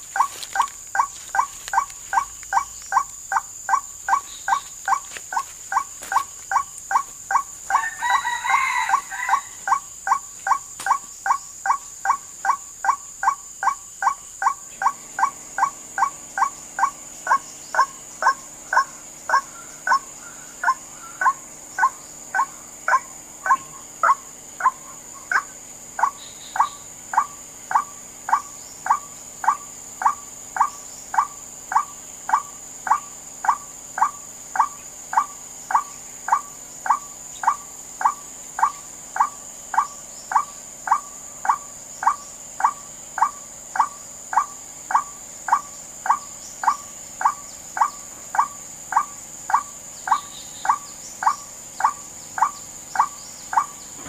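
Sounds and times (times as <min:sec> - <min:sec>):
waterhen wak calls: 0:00.0 - 0:53.8.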